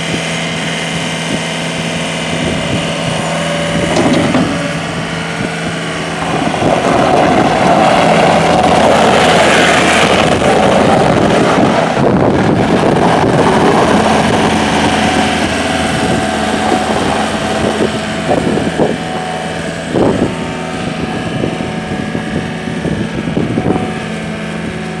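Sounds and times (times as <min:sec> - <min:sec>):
diesel engine running: 0:00.0 - 0:25.0
short knocks: 0:03.9 - 0:04.8.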